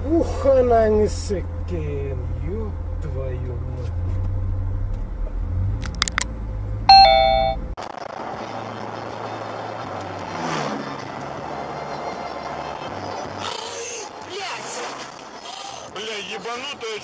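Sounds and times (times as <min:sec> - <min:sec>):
car engine and road rumble: 0:00.0 - 0:17.0
loud two-note tone: 0:06.9 - 0:07.6.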